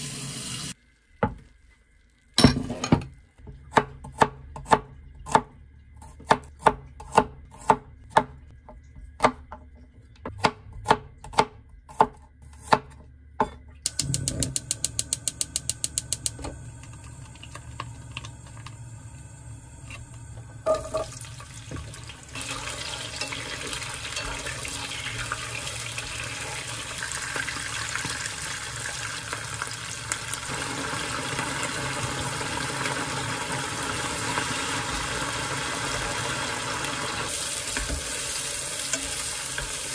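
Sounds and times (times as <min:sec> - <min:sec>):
gas stove igniter ticking: 0:13.9 - 0:19.5
garlic sizzling in frying pan: 0:13.9 - 0:39.9.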